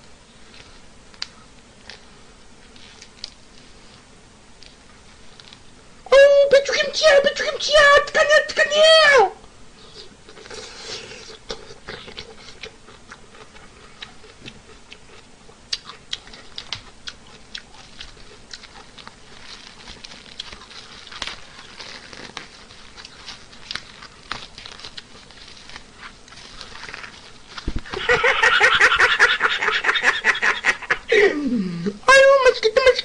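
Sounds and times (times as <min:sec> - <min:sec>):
chewing mouth clicks and smacks: 0:11.5 - 0:19.2
rustling food containers: 0:17.8 - 0:30.7.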